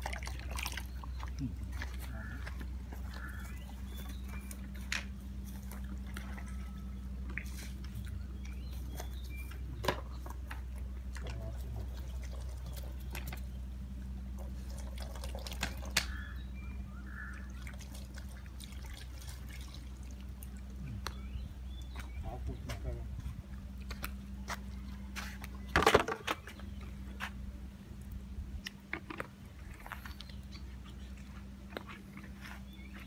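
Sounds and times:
dogs lapping water: 0.0 - 16.4, 17.0 - 22.6
low hum: 0.0 - 33.0.

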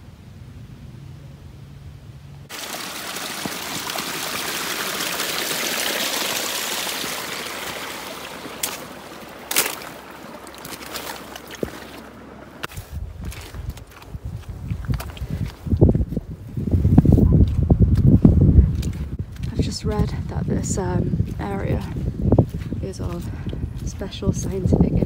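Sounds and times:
stream rushing over rocks: 2.5 - 12.7.

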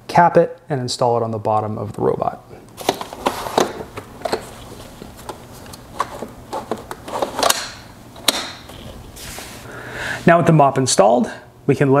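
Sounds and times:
plastic parts clipping on: 2.8 - 8.9.

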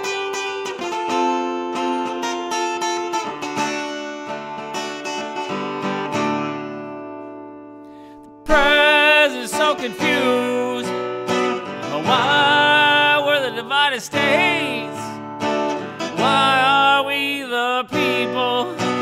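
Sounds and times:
acoustic guitar picking and strumming: 0.0 - 19.0
man singing: 8.4 - 15.2, 15.9 - 19.0.

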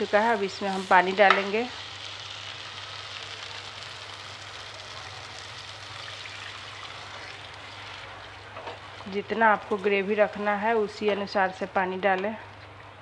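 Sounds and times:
masala sizzling in a pan: 0.0 - 12.0
water pouring into pan: 5.4 - 9.0.

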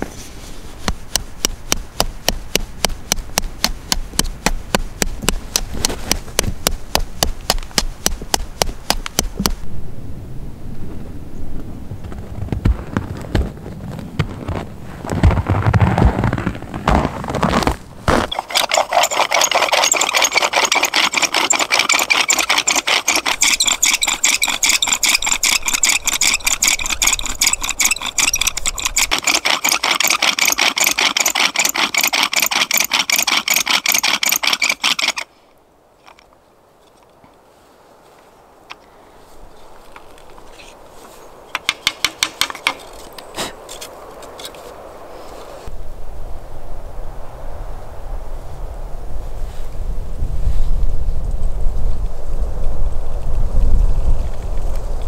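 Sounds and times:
rapid even scraping: 0.0 - 9.6, 12.0 - 35.3, 39.2 - 45.7.

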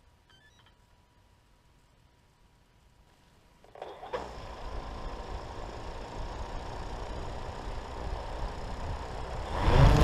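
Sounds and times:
drone propellers whirring: 4.1 - 10.0.

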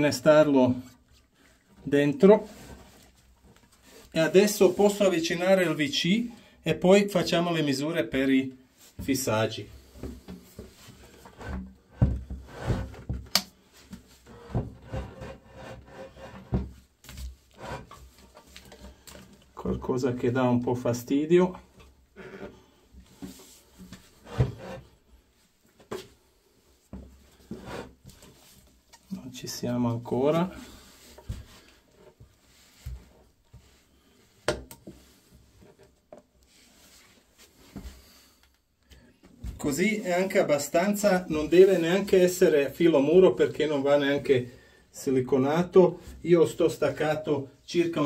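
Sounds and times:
toilet pan scraping on wooden floor: 9.8 - 13.2, 14.2 - 16.8, 17.5 - 18.9, 22.2 - 25.0, 27.3 - 28.4.

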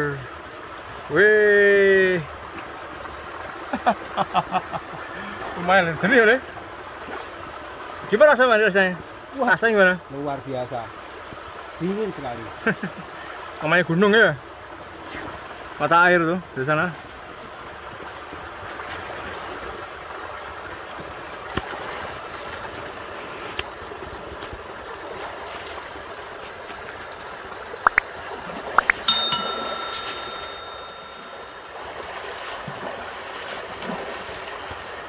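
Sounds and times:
running spring water: 0.0 - 30.6
bicycle bell ring: 29.1 - 31.8.

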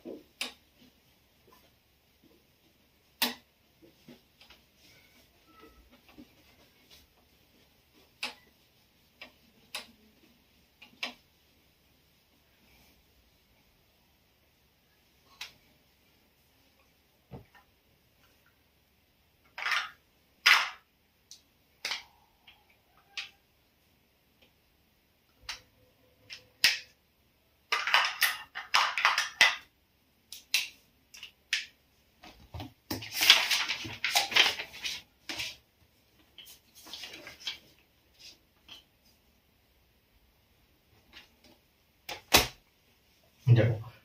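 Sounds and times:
rustling or rubbing: 3.7 - 13.6, 32.3 - 39.4.

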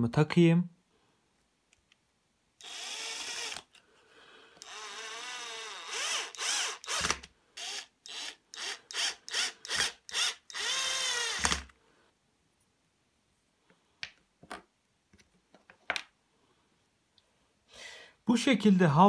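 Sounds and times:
drill driving screws into wood: 2.6 - 3.8, 4.6 - 11.7.

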